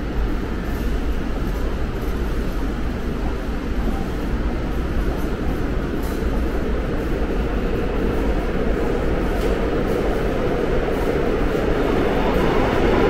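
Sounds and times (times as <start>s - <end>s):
subway train rumbling: 0.0s - 13.0s.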